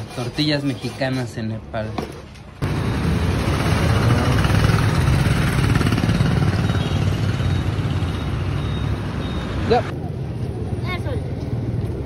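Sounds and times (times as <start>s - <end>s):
vehicle engine and road noise: 0.0s - 12.0s.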